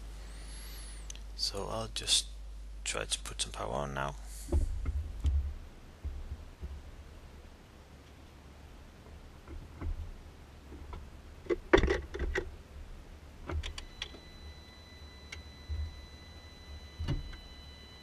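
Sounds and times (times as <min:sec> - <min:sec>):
high-pitched electronic whine: 0:13.7 - 0:18.0.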